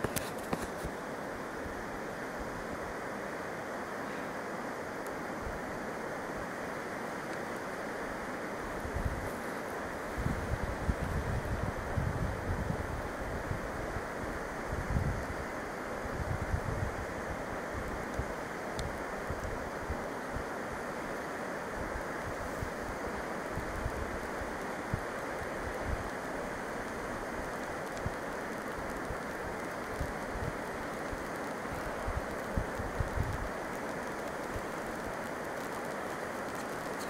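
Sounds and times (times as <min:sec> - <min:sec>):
river rushing: 0:00.0 - 0:37.0
wind buffeting microphone: 0:08.8 - 0:09.3, 0:10.1 - 0:15.4.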